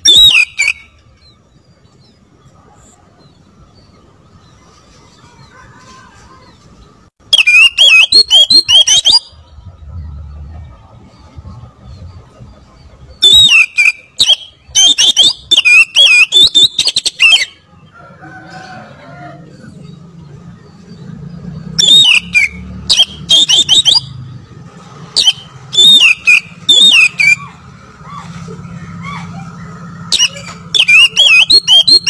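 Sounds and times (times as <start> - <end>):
bird singing whistled notes: 0.0 - 2.5, 7.2 - 10.4, 13.1 - 17.7, 20.6 - 24.5, 25.2 - 27.5, 30.1 - 32.0.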